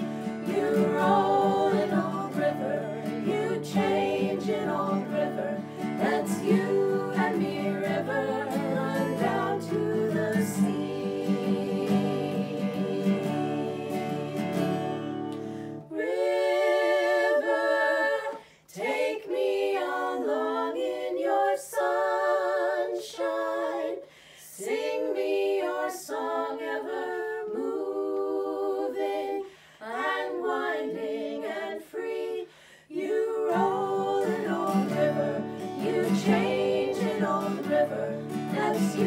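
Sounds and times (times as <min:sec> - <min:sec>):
acoustic guitar strumming chords: 0:00.0 - 0:15.7
women singing together: 0:00.0 - 0:39.0.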